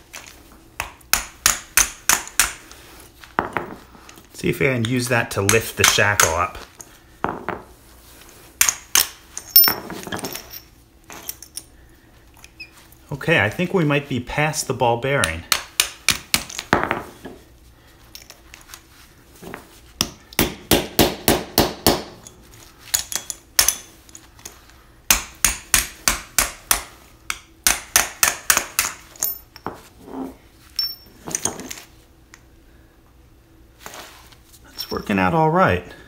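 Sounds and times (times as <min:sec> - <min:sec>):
hammer striking steel punch: 0:20.0 - 0:22.1, 0:25.1 - 0:29.0.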